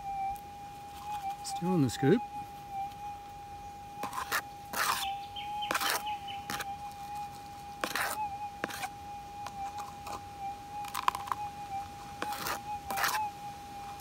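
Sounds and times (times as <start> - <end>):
metal detector hum: 0.0 - 14.0.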